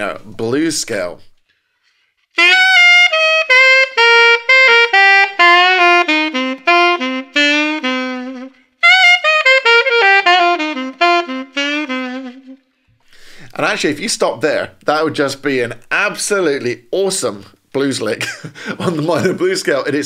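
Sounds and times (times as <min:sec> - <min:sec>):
solo saxophone blues lick: 0:02.3 - 0:12.8.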